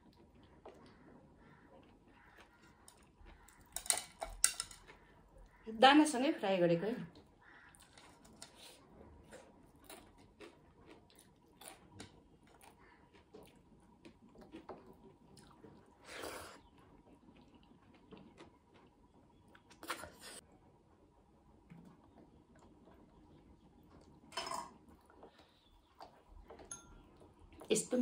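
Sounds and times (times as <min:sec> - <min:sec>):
faint chewing: 0:00.0 - 0:05.7, 0:07.1 - 0:20.5, 0:21.5 - 0:28.0.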